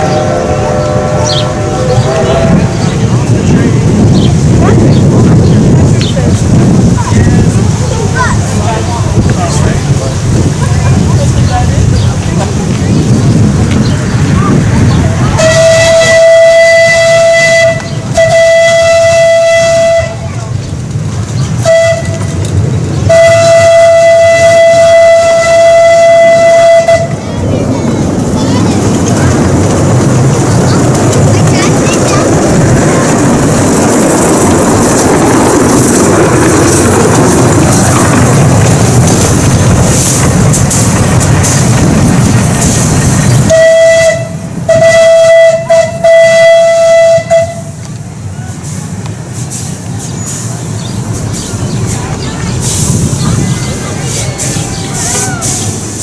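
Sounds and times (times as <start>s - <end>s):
loud steady rushing noise: 0.0s - 56.0s
train rumbling: 0.0s - 56.0s
steam whistle blast: 15.4s - 20.2s, 21.6s - 22.3s, 23.1s - 27.2s, 43.5s - 47.7s.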